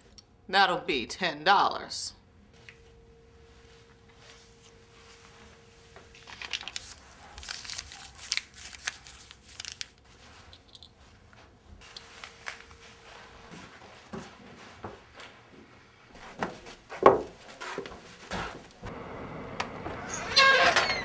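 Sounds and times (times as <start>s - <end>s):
paper money crinkling: 6.1s - 10.8s.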